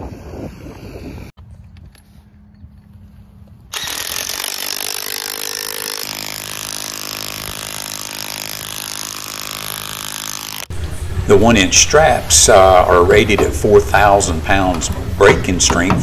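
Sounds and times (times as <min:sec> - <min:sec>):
cordless impact wrench running: 0:03.7 - 0:10.7.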